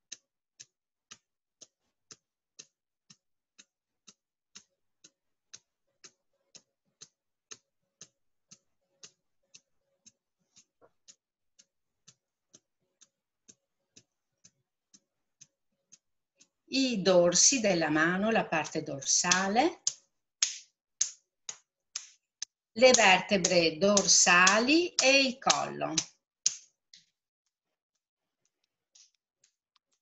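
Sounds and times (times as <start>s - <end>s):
thumbs tapping together: 17.3s - 27.1s.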